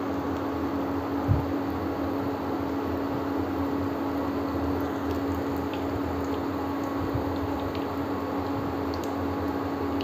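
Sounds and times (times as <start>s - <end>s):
cooktop humming: 0.0s - 10.0s
oil popping and crackling: 4.7s - 8.1s, 8.8s - 9.2s.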